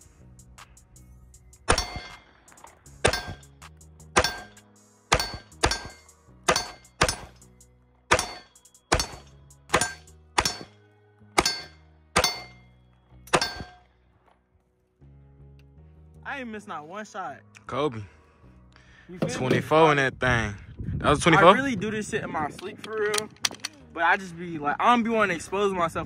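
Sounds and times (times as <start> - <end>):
background music: 0.0 - 26.0
steel plate targets ringing: 1.7 - 2.4, 3.0 - 3.5, 4.2 - 7.5, 8.1 - 10.8, 11.4 - 12.7, 13.3 - 13.9.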